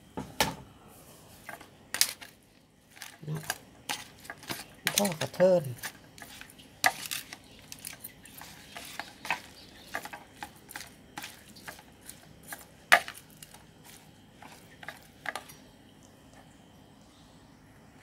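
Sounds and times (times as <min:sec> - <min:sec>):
metal spoon scraping plastic bowl: 0:02.9 - 0:15.5.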